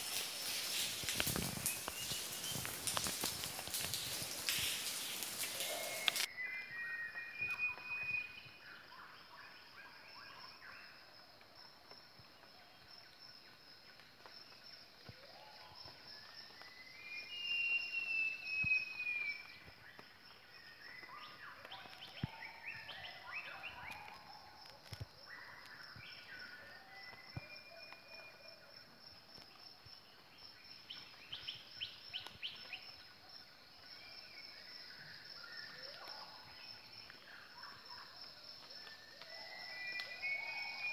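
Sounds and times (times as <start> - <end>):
whistled call sliding down: 4.5 - 8.3.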